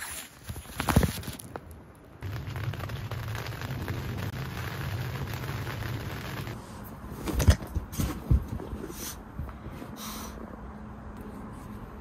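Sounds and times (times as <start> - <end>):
rain on tent fabric: 2.2 - 6.6.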